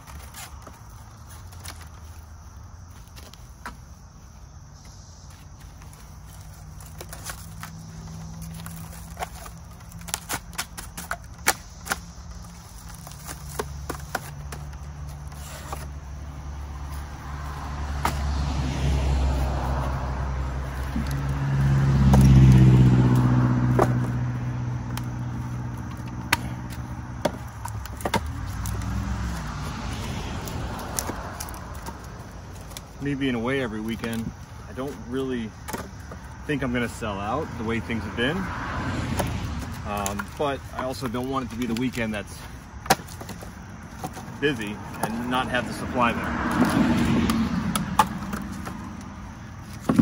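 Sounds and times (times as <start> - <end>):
passing vehicle engine hum: 3.9 - 10.6, 11.3 - 50.0
firewood logs knocking: 6.7 - 15.9, 20.6 - 33.0, 33.9 - 36.4, 38.5 - 50.0.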